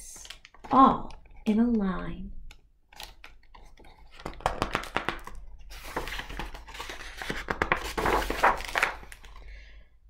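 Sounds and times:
paper rustling and crinkling: 0:02.9 - 0:09.5.

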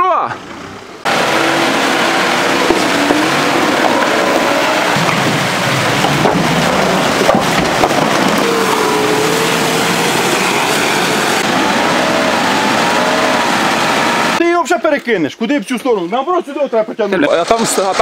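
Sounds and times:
engine running under load: 0:00.4 - 0:14.4
tyres splashing through water: 0:01.1 - 0:14.4
sharp knocks: 0:02.6 - 0:08.7.

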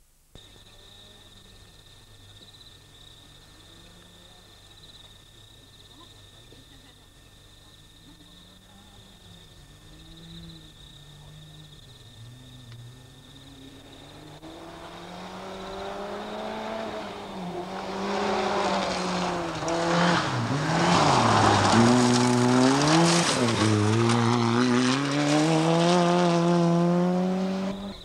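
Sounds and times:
rally car engine revving: 0:09.7 - 0:28.0
gravel spraying from tyres: 0:13.8 - 0:26.5.

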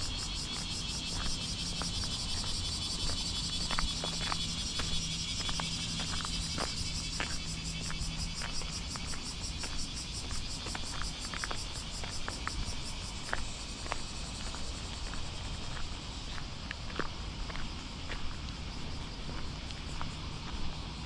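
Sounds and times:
cicadas buzzing: 0:00.0 - 0:21.0
footsteps on pavement: 0:00.0 - 0:21.0.

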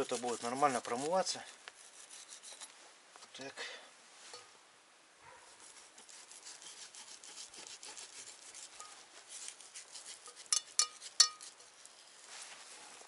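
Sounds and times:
knife scraping frozen meat: 0:00.0 - 0:02.7, 0:05.6 - 0:12.3.

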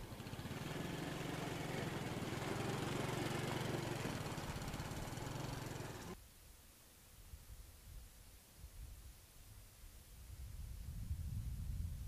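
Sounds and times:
small motorcycle engine passing: 0:00.0 - 0:06.2.

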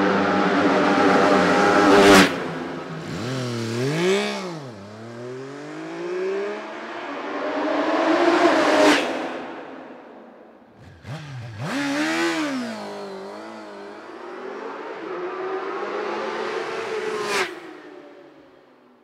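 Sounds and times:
motorcycle engine climbing in pitch: 0:00.0 - 0:09.9, 0:10.5 - 0:17.9
motorcycle engine revving: 0:00.2 - 0:08.4, 0:10.7 - 0:17.4.

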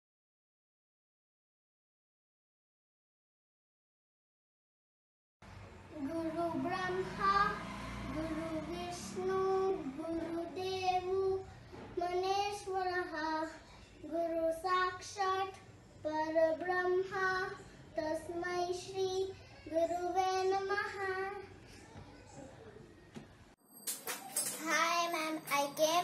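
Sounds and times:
girl singing: 0:05.9 - 0:21.4, 0:24.4 - 0:26.0.

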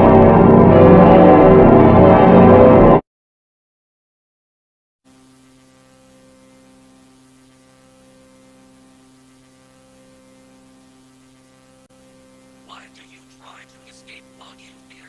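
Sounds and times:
electrical hum: 0:05.1 - 0:15.0
faint static hiss: 0:05.1 - 0:15.0.

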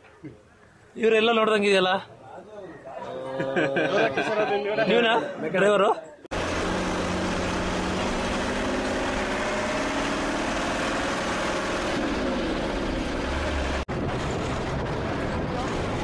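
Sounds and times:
bus engine running: 0:06.3 - 0:16.0
road noise inside bus: 0:06.3 - 0:16.0.

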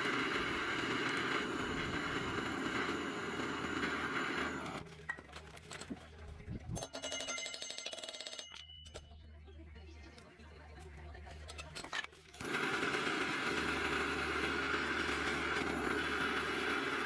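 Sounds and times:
butane torch hissing: 0:00.0 - 0:04.8, 0:12.5 - 0:17.0
metal tools clinking: 0:06.8 - 0:09.2.

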